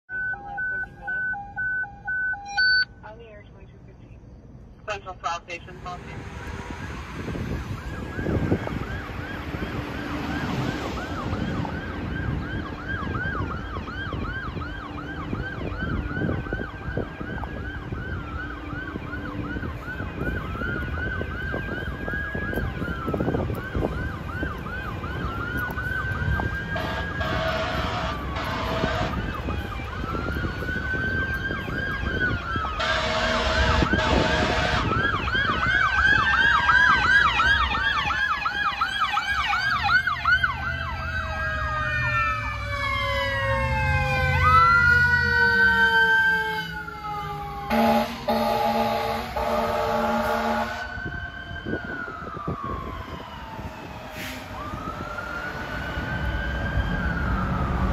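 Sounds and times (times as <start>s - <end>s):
siren wailing and yelping: 0.1s - 3.0s, 6.7s - 57.9s
lower siren: 0.1s - 4.4s, 5.6s - 57.9s
air horn blasts: 26.8s - 29.3s, 32.8s - 35.1s, 47.7s - 51.0s.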